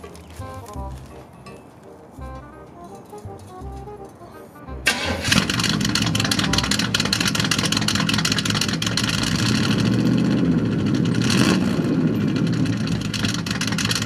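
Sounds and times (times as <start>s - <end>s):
car exhaust rumbling: 3.2s - 4.1s, 4.7s - 14.0s.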